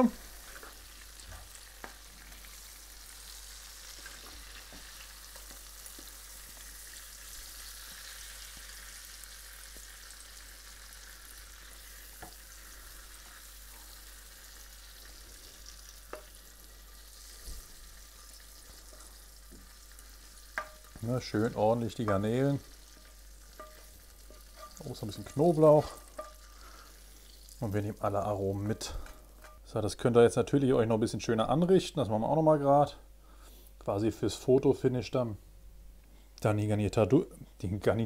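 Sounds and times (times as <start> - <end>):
pan sizzling softly: 0.0 - 30.0.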